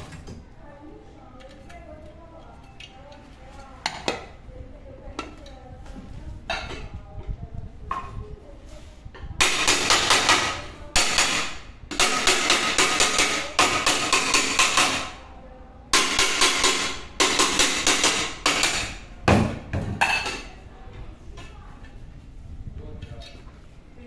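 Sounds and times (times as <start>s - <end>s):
hammer tapping on metal pot: 9.4s - 15.1s, 15.9s - 19.4s.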